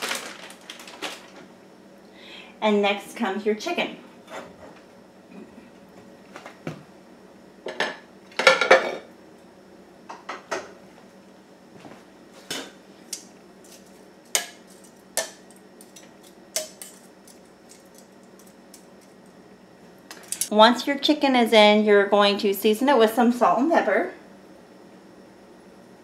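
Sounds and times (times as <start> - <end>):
metal tongs clinking and scraping: 13.6 - 19.2, 20.2 - 20.5.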